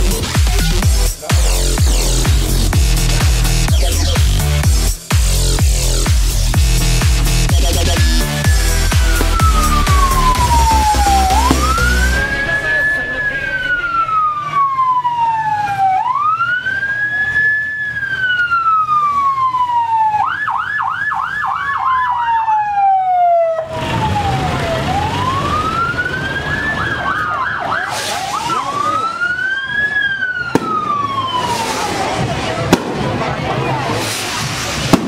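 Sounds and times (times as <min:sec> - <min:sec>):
siren fast warbling: 0:07.5 - 0:20.1, 0:21.7 - 0:32.6
electronic siren wailing: 0:07.5 - 0:32.6.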